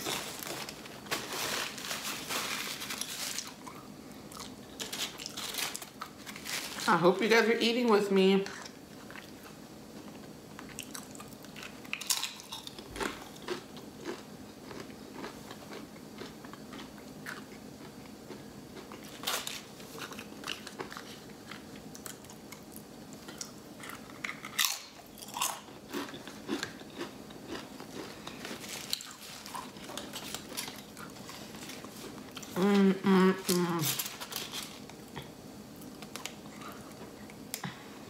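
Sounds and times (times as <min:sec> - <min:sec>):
foil wrapper rustling: 0:00.0 - 0:03.7, 0:04.8 - 0:07.4, 0:28.3 - 0:35.0
chips being bitten and chewed: 0:00.0 - 0:06.9, 0:10.6 - 0:32.6.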